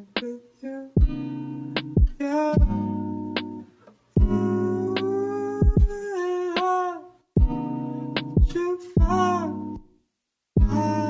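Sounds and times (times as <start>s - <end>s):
background music: 1.0s - 6.8s, 7.4s - 9.9s, 10.6s - 11.0s
low thumps: 1.8s - 2.8s, 4.2s - 4.4s, 5.0s - 6.0s, 7.4s - 7.6s, 8.2s - 9.2s, 10.6s - 10.8s.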